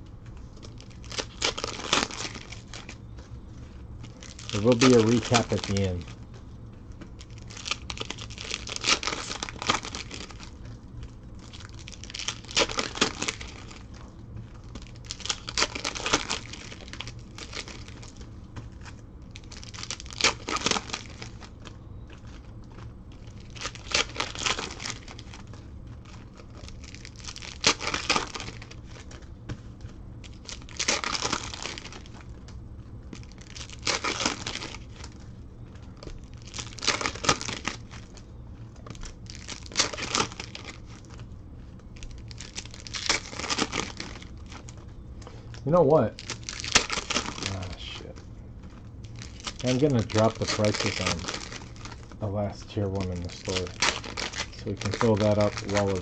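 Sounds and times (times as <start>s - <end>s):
foil wrappers crinkling and tearing: 0.0s - 56.0s.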